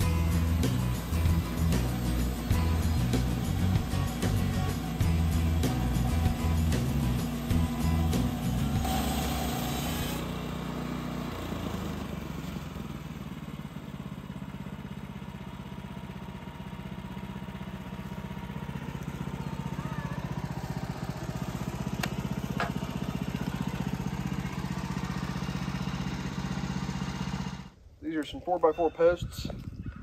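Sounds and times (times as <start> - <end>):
sawmill engine running: 0.0 - 27.8
band blade sawing wood: 0.4 - 10.4.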